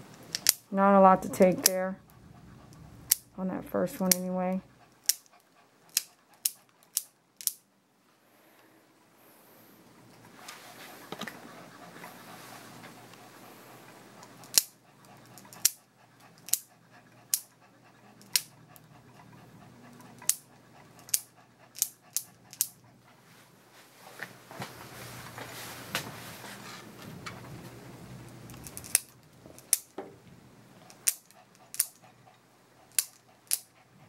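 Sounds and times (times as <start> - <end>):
nail clippers clipping: 0.3 - 0.6, 5.9 - 7.6, 14.4 - 14.7, 15.4 - 15.8, 16.4 - 16.7, 21.0 - 22.7, 28.5 - 29.9, 30.9 - 32.0, 32.9 - 33.7
dog panting: 0.8 - 7.0, 9.9 - 23.6, 30.7 - 34.0.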